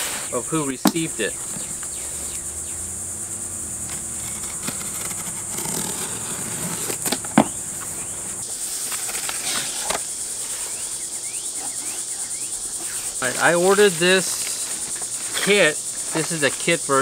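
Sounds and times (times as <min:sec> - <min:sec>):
insects droning: 0:00.0 - 0:17.0
cardboard box being opened: 0:03.8 - 0:07.6.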